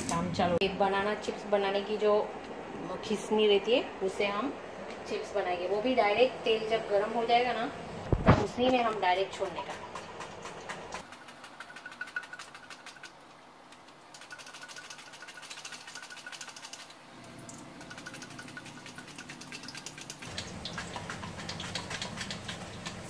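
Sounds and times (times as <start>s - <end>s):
hot oil sizzling: 20.2s - 23.0s.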